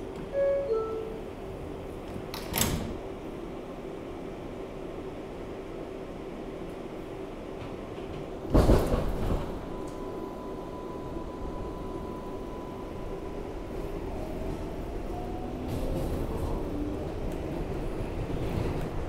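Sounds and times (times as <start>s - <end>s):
subway train rumble: 0.0s - 19.0s
steady high tone: 0.3s - 1.4s.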